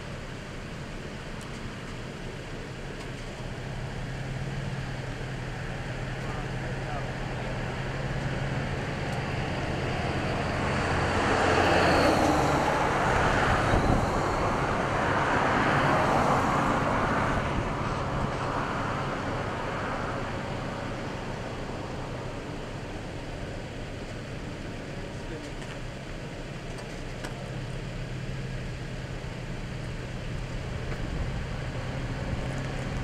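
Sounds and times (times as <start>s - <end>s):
vehicle passing by: 4.4s - 22.7s, 30.3s - 33.0s.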